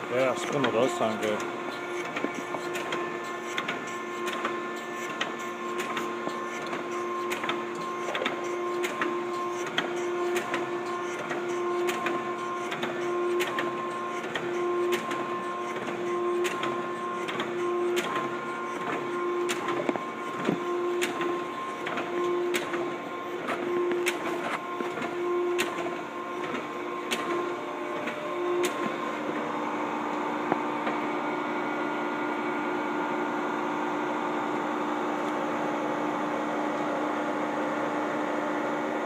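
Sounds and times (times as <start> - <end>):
surface grinder humming: 0.0 - 32.0.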